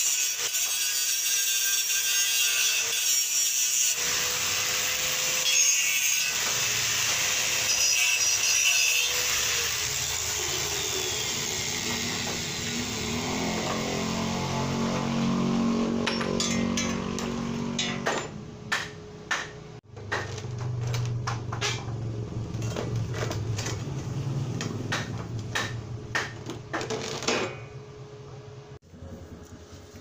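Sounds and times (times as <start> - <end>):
metal clanks and knocks: 15.9 - 24.0, 24.6 - 27.8.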